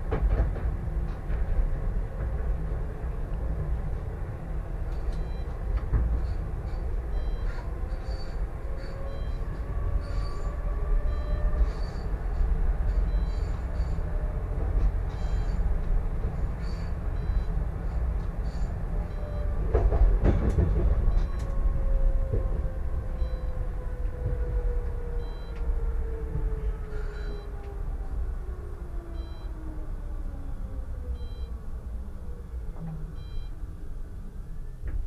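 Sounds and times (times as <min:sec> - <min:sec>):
tram rumbling on rails: 0:00.0 - 0:35.0
wheels knocking on track: 0:19.6 - 0:21.3.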